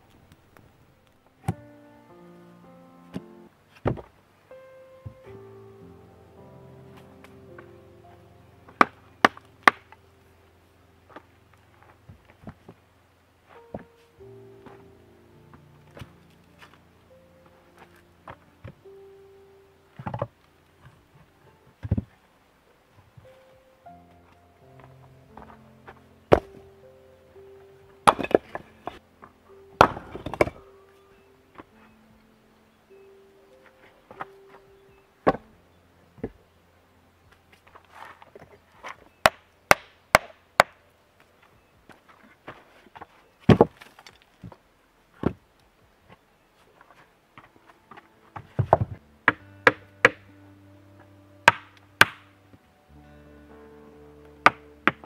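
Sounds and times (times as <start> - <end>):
soft music with held notes: 0.0 - 55.0
stones knocking onto rocks: 28.1 - 28.6, 29.8 - 30.6
stones clattering: 28.1 - 29.0, 29.8 - 30.6.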